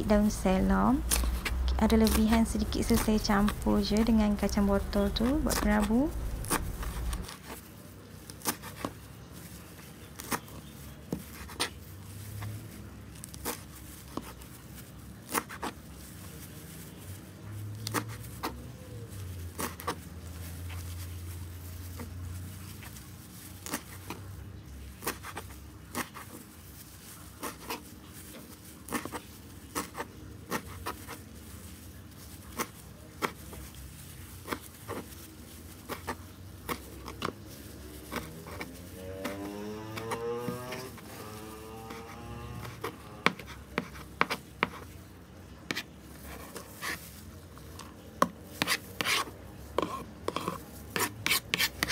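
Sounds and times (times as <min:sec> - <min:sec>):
low hum: 0:00.0 - 0:07.3.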